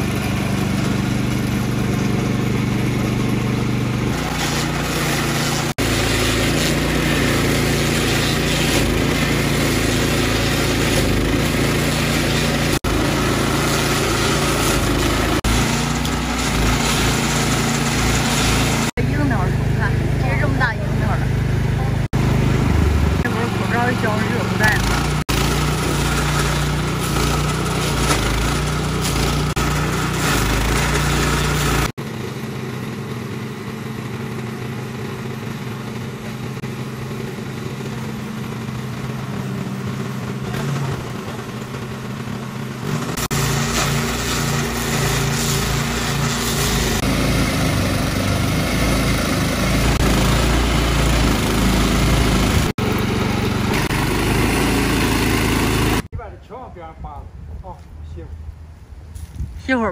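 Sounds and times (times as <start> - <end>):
cutter wheel grinding tree stump: 0.0 - 56.1
small petrol engine running hard: 0.0 - 56.1.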